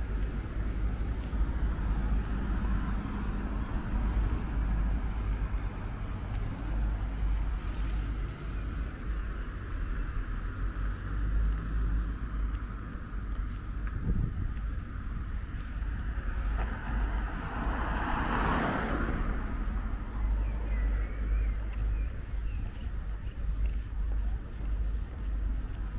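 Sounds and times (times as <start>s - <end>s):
cars driving past: 0.0s - 25.9s
steady low rumble: 0.0s - 25.9s.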